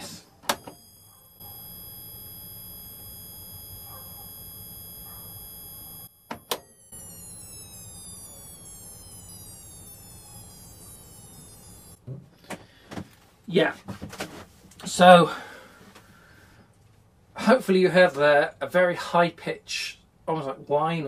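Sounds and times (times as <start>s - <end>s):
high pitched transformer whine: 0.0s - 12.0s
low hum: 0.6s - 12.0s.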